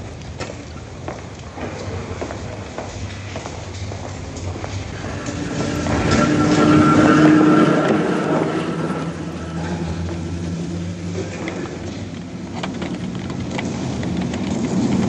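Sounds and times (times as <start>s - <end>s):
electric tram whine: 1.5s - 15.0s
low hum: 3.1s - 13.0s.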